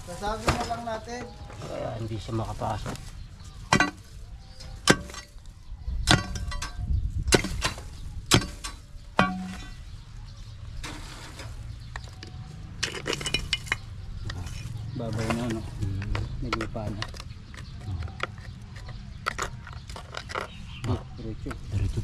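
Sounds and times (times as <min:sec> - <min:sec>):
metal tools clanking on stone: 0:03.7 - 0:05.4, 0:06.1 - 0:09.9, 0:12.8 - 0:21.6.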